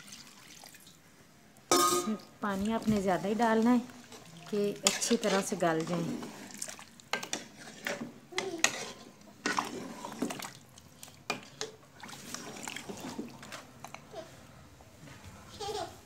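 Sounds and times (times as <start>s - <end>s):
liquid swishing in pot: 2.5s - 13.6s.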